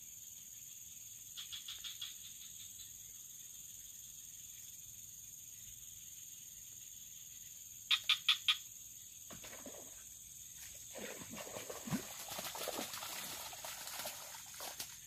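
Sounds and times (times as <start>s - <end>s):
high insect drone: 0.0s - 15.0s
frog croaking: 7.9s - 8.7s.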